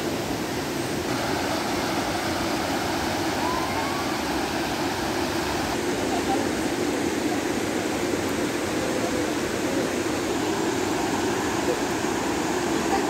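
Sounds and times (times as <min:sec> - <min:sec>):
river flowing over stones: 0:00.0 - 0:13.0.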